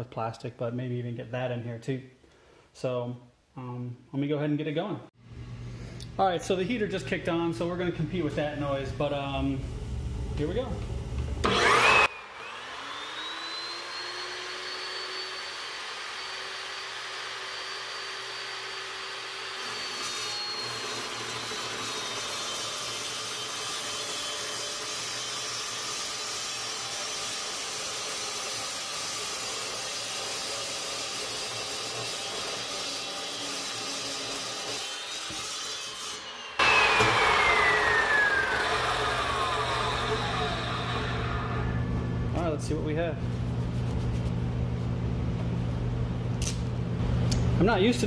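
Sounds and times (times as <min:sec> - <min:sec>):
chop saw motor whine: 0:11.2 - 0:24.3, 0:36.2 - 0:42.4
saw blade cutting steel pipe: 0:12.8 - 0:41.8.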